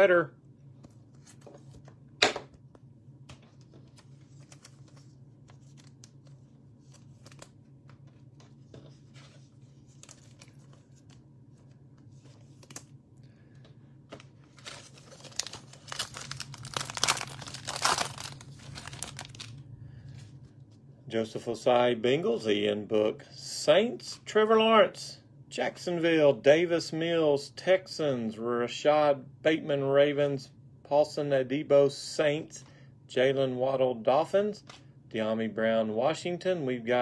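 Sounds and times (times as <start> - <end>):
foil wrapper tearing and crinkling: 14.6 - 19.6.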